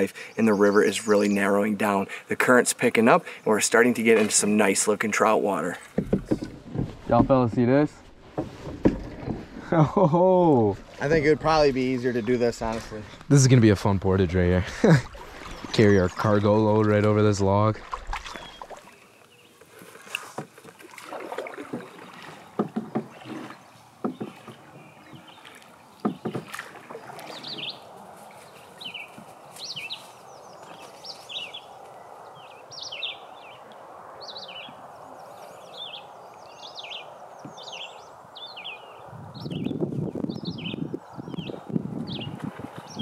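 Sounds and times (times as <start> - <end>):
water splashing: 0.0 - 29.6
running river water: 0.0 - 39.7
paddles knocking on hull: 4.1 - 9.9, 20.3 - 27.7
bird chirping: 18.3 - 19.6, 22.4 - 43.0.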